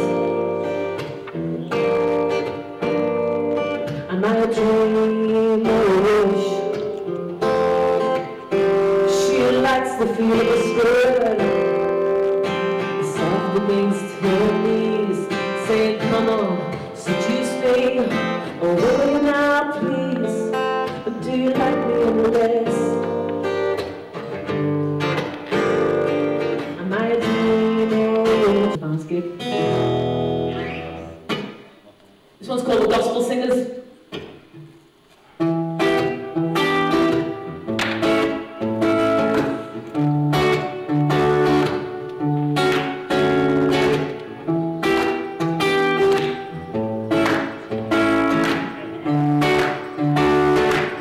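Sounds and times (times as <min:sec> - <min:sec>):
strummed acoustic guitar: 0:00.0 - 0:31.8, 0:34.1 - 0:51.0
woman singing: 0:03.9 - 0:07.2, 0:08.8 - 0:12.2, 0:12.8 - 0:23.2, 0:26.6 - 0:29.9.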